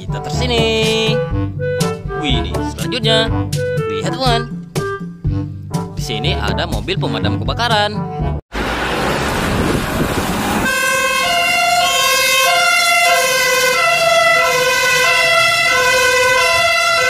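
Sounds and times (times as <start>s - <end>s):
loud rushing noise: 8.5s - 10.8s
fire engine two-tone siren: 8.6s - 17.0s.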